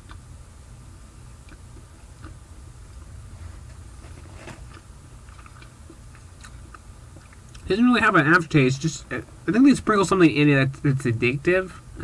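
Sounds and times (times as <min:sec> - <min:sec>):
chewing with mouth clicks: 0:00.0 - 0:00.3, 0:01.4 - 0:02.4, 0:04.6 - 0:07.7
low steady hum: 0:00.0 - 0:12.0.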